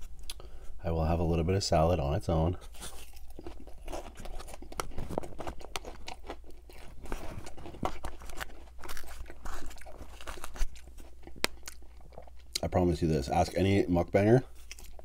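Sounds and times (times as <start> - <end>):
chewing crisp lettuce: 2.6 - 15.0.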